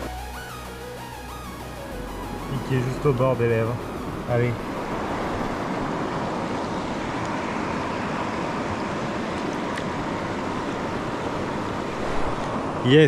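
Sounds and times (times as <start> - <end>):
river water rushing: 3.4 - 12.9.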